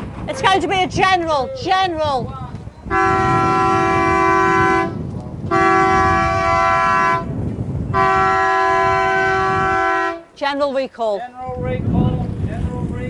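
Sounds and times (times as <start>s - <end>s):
starting horn blasts: 2.9s - 10.4s.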